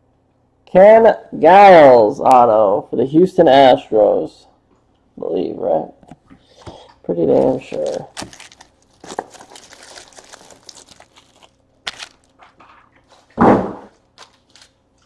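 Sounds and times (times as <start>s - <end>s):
crinkling plastic wrap: 7.2s - 15.0s.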